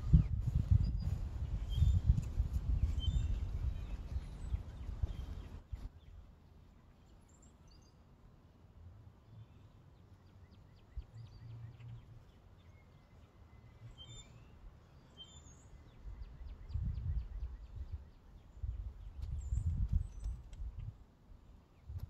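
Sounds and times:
small birds chirping: 0.0s - 8.0s, 9.2s - 21.1s.

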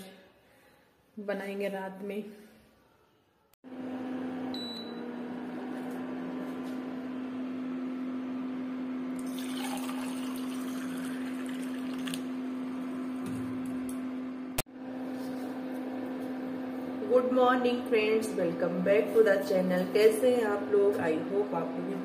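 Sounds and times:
liquid pouring into steel tumbler: 9.2s - 12.3s.

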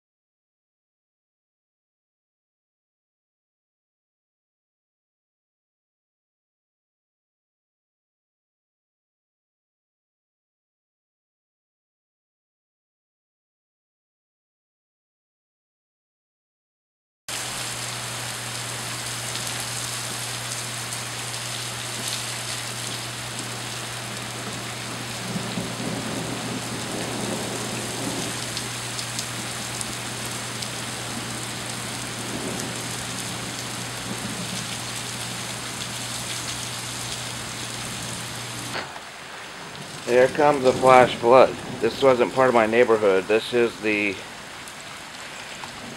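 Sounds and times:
steady low hum: 17.3s - 38.8s
steady rain hiss: 17.3s - 45.9s.

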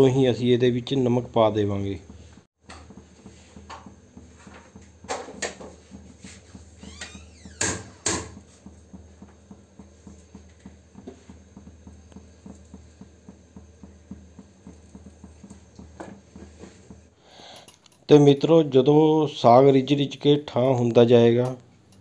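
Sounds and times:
pot simmering with crackling: 1.2s - 17.2s.

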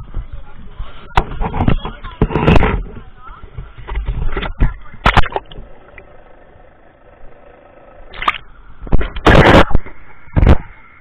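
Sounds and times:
water splashing: 5.0s - 5.6s.

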